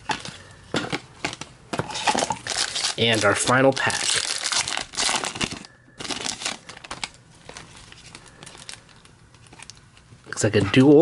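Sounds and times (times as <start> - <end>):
card pack wrapper crinkling: 1.3 - 10.1.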